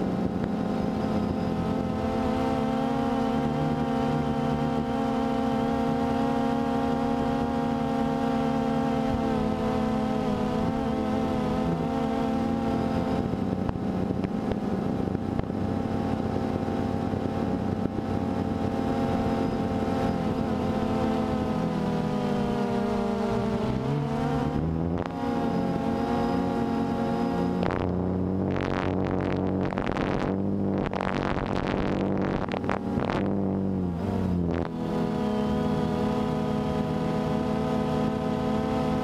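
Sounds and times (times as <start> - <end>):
drone propellers buzzing: 0.0 - 39.0
rough rushing noise: 27.6 - 34.8.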